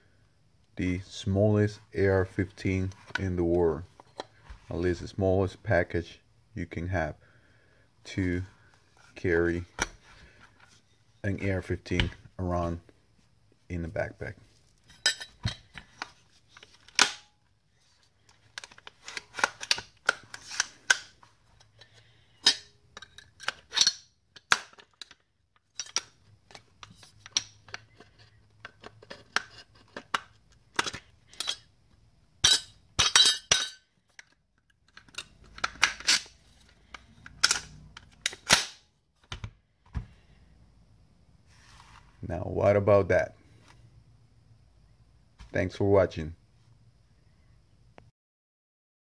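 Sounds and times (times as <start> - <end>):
metal clicks of rifle assembly: 34.2 - 38.8.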